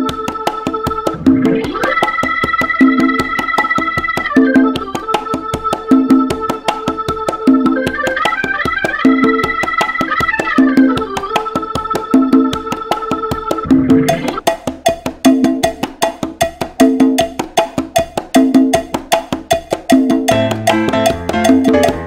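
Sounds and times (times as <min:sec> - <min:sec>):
sliding lead melody: 0:00.0 - 0:14.4, 0:20.3 - 0:22.0
percussion beat: 0:00.0 - 0:22.0
repeating low bass figure: 0:13.7 - 0:14.4.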